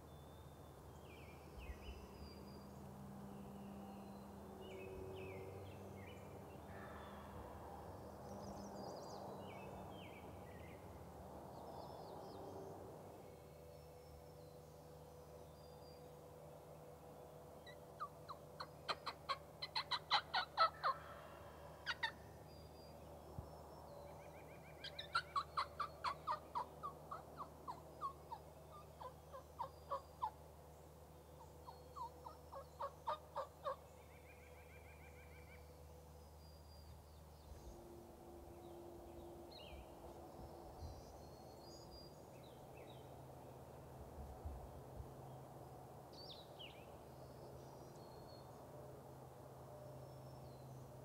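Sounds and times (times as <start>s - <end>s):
turkey yelping: 18.9s - 21.1s, 21.9s - 22.1s, 24.9s - 28.4s, 32.0s - 33.8s.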